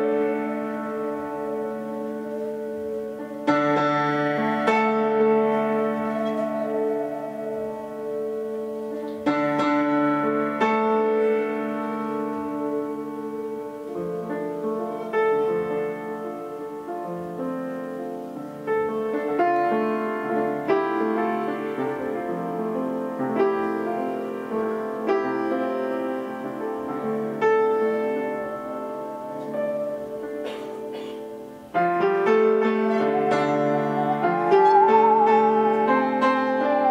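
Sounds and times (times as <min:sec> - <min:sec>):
piano playing slow chords: 0:00.0 - 0:36.9
bowed string instrument: 0:19.0 - 0:36.9.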